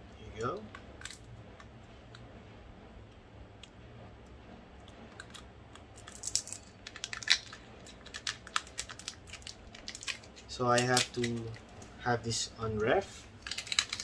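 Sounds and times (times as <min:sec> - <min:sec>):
snack wrapper crinkling: 0:06.0 - 0:11.9, 0:13.3 - 0:14.0.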